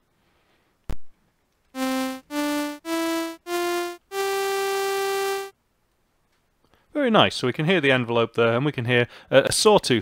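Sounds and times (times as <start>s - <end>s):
sawtooth synthesizer notes rising: 1.8s - 5.5s.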